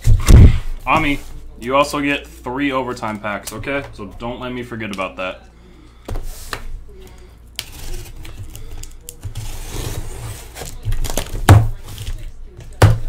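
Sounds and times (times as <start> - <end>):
cardboard scraping and rustling: 9.2 - 12.2.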